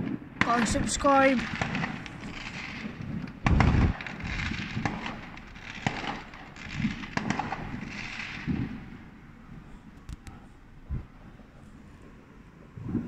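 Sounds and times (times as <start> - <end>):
fireworks dull thuds: 0.0 - 9.2
fireworks cracking and crackling: 0.0 - 10.3.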